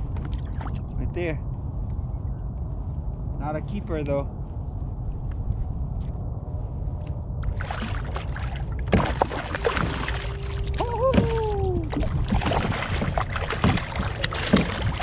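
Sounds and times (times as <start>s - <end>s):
low wind rumble: 0.0s - 15.0s
fish splashing at water surface: 7.5s - 15.0s
brief wavering cry: 10.6s - 11.9s.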